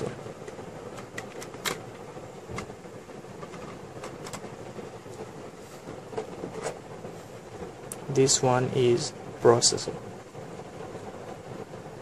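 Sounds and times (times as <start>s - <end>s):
steady background noise: 0.0s - 12.0s.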